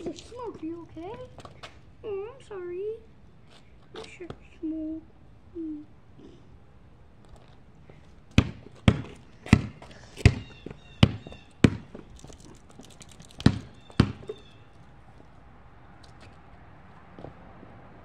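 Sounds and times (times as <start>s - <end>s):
basketball bouncing on concrete: 8.3s - 14.5s.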